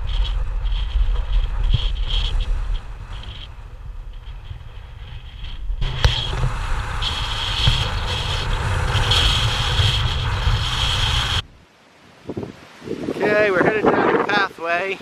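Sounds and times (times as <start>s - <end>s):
car engine and road noise: 0.0s - 11.7s.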